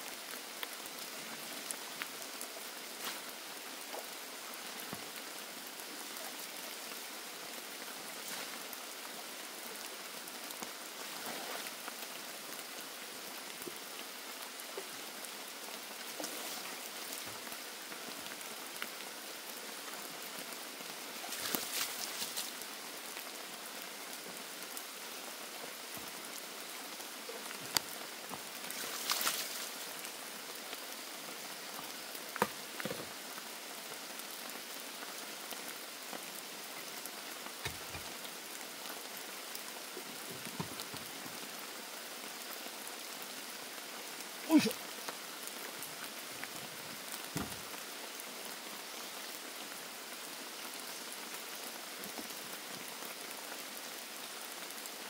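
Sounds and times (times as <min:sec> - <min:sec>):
rain patter: 0:00.0 - 0:55.0.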